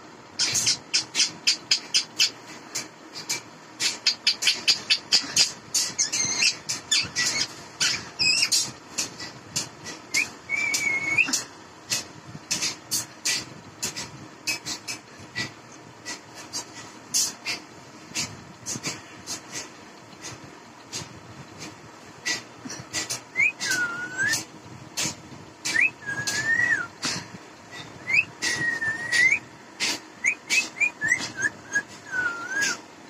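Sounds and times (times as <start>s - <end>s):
parakeet whistling: 4.0s - 8.6s, 10.1s - 11.4s, 23.3s - 24.4s, 25.7s - 26.9s, 27.8s - 29.4s, 30.2s - 32.8s.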